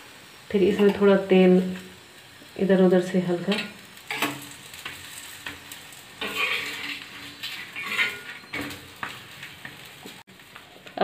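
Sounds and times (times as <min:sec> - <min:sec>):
spatula clinking on griddle: 0:03.5 - 0:10.0
metal spatula scraping griddle: 0:03.5 - 0:10.4.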